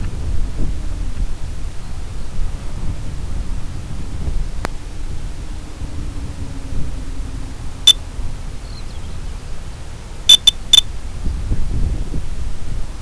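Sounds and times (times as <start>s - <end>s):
wind rumble on microphone: 0.0s - 13.0s
short electronic beeps: 10.3s - 10.8s.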